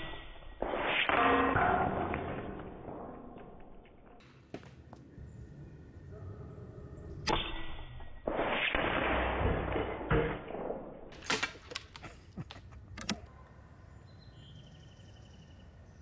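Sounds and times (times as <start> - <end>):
sharp clicks: 11.7 - 13.3.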